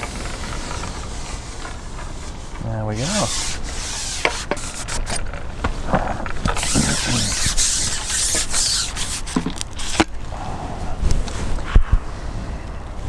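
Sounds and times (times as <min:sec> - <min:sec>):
fishing rod creaking and rubbing: 0:00.0 - 0:10.2
brief hissing rubs: 0:03.0 - 0:05.2, 0:06.6 - 0:10.0.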